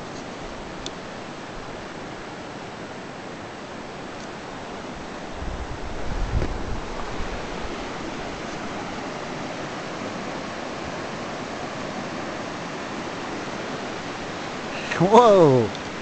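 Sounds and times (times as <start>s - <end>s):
creek rushing over rocks: 0.0s - 16.0s
wind buffeting microphone: 4.6s - 9.6s.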